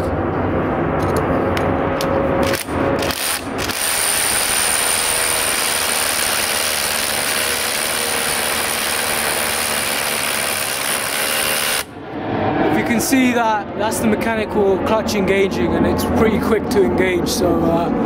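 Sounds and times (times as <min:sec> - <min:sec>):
rotary hammer drilling into concrete: 0:02.4 - 0:11.9.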